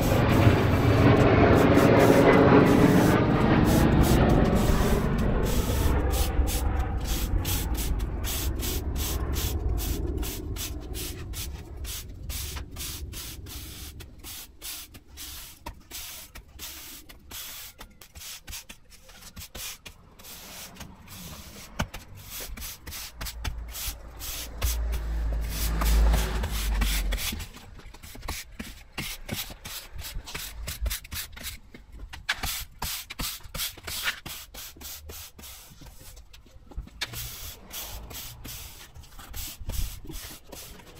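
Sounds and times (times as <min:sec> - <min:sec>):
low rumble: 0:00.0 - 0:14.4
broom sweeping sand on paving: 0:00.0 - 0:31.5, 0:32.4 - 0:36.2, 0:37.0 - 0:40.9.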